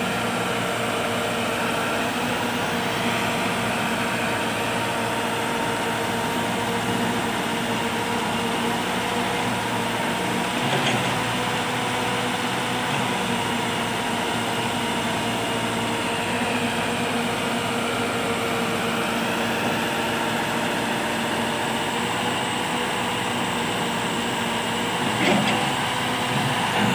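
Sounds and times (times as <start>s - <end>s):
tractor diesel engine running: 0.0s - 26.9s
backhoe digging soil: 10.4s - 11.7s, 24.9s - 26.9s.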